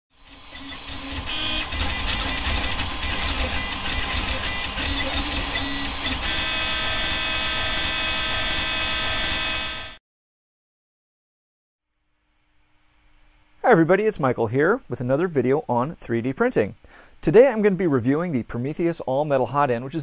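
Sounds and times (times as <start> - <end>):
printer stepper motors whining: 0.1 - 10.0
steady tones: 0.3 - 10.0.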